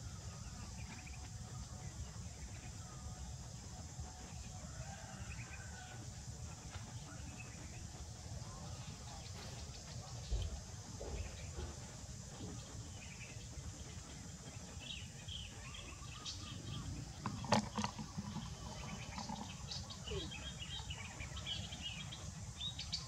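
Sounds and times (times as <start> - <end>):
faint bird chirps: 6.5 - 23.0.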